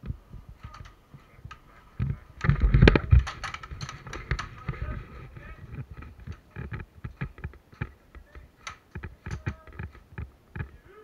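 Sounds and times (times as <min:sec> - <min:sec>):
airsoft gunfire clicks and snaps: 0:06.2 - 0:10.7.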